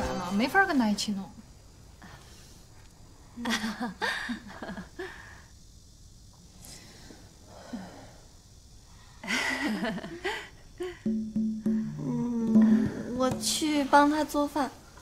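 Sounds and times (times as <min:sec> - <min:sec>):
women laughing: 0:03.4 - 0:05.1, 0:09.2 - 0:11.0.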